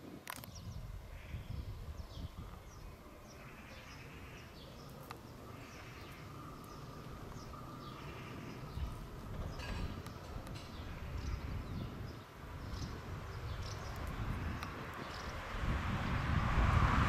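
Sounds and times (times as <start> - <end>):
birds chirping: 0.0 - 15.8
train rumbling over track: 5.3 - 17.0.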